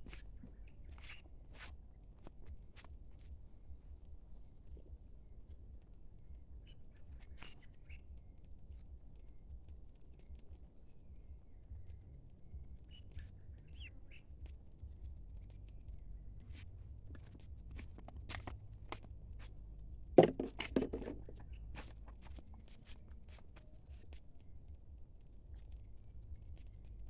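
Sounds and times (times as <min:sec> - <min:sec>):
low steady rumble: 0:08.0 - 0:27.0.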